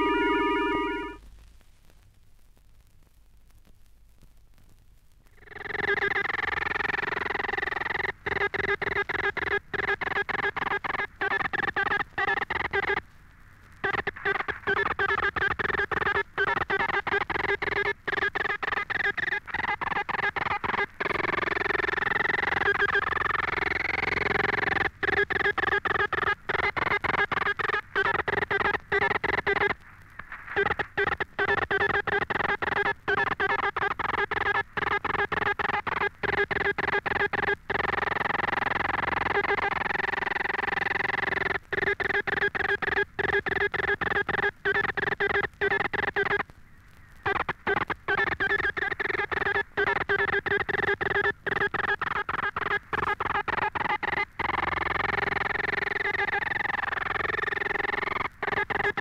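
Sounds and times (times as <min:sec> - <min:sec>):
morse code tone: 0:00.0 - 0:01.2, 0:13.9 - 0:29.8, 0:30.6 - 0:46.4, 0:47.3 - 0:59.0.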